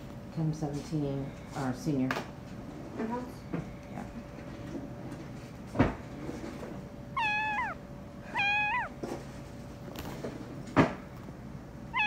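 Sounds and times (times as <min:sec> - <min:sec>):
kitten meowing: 0:07.2 - 0:08.9.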